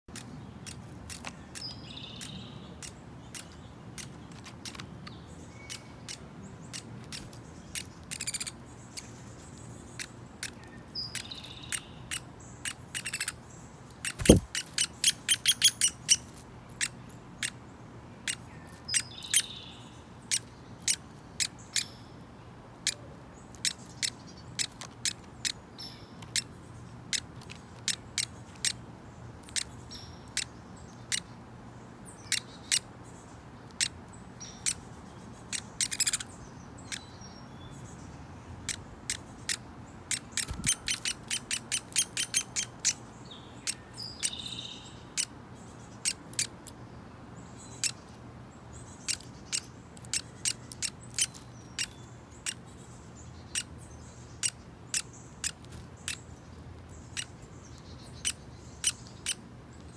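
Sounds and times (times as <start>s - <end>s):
soft high chirping calls: 0.1s - 22.2s, 32.1s - 46.8s, 47.4s - 59.9s
woodpecker sharp ticks: 14.1s - 16.2s, 38.7s - 43.0s.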